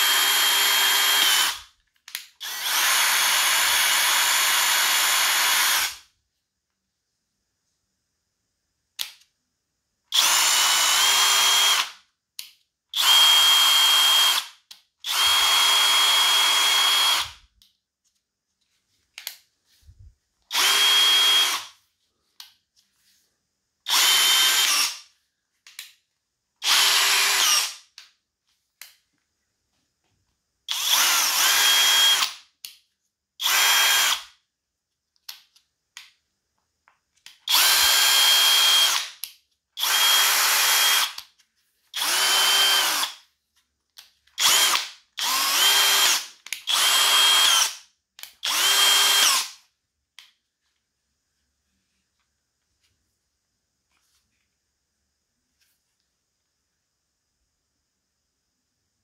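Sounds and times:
cordless drill motor whining: 0.0 - 1.7, 2.4 - 6.0, 10.1 - 12.0, 13.0 - 17.4, 20.5 - 21.7, 23.9 - 25.0, 26.6 - 27.8, 30.7 - 32.3, 33.4 - 34.3, 37.5 - 39.0, 39.8 - 41.2, 41.9 - 43.2, 44.4 - 47.8, 48.4 - 49.6.

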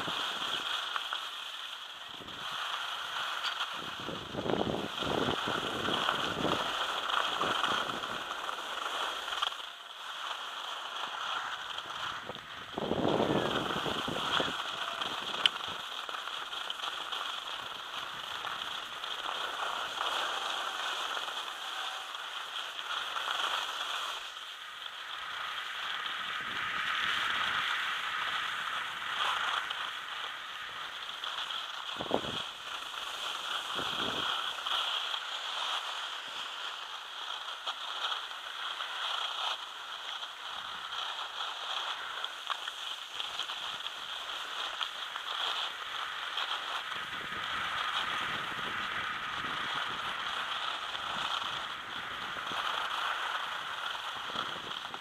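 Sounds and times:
skis scraping over snow: 0.0 - 55.0
wind buffeting microphone: 3.7 - 8.3, 11.8 - 15.8, 32.0 - 32.5, 33.6 - 34.3.

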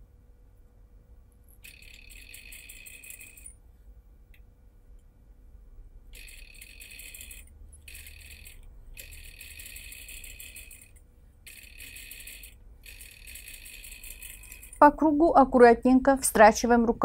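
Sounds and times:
sewing machine stitching: 6.2 - 14.9.

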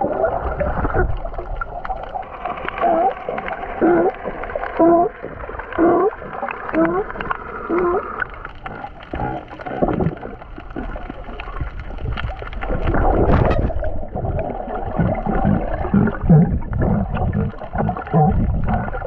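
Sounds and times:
underwater water rushing and bubbling: 0.0 - 19.0
sea lion underwater grunts: 2.7 - 11.2, 14.9 - 19.0.

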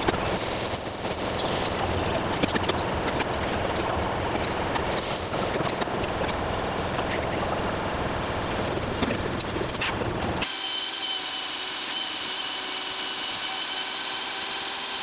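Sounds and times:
high squeal: 0.4 - 1.8
drill cutting ticks: 10.4 - 15.0.

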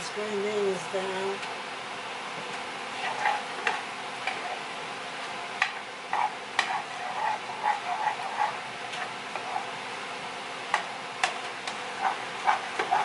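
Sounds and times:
utensil scraping skillet: 3.0 - 9.9, 10.8 - 13.0.

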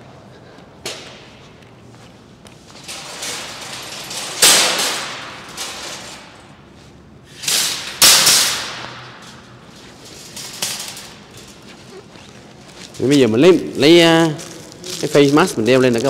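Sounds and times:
metal shopping carts clattering: 2.6 - 16.0.

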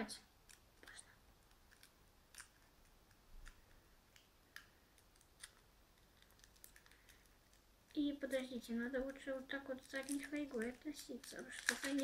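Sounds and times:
foil crinkling: 5.0 - 7.6, 8.2 - 12.0.

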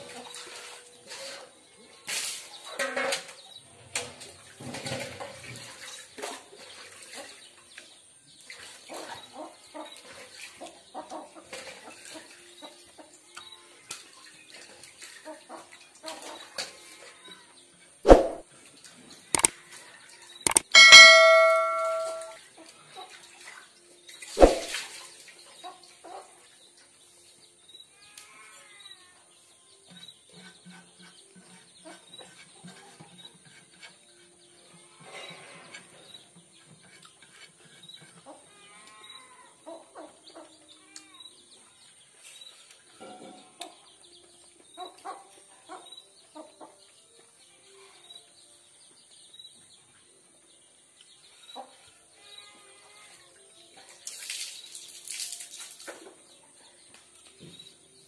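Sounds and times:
sharp knock: 18.1 - 18.4, 24.4 - 24.7.

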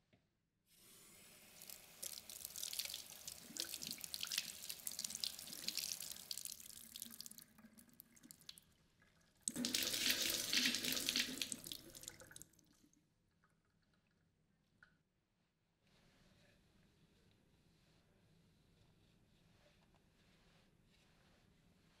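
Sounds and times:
tap water splashing onto cloth: 1.6 - 8.6, 9.4 - 12.7.

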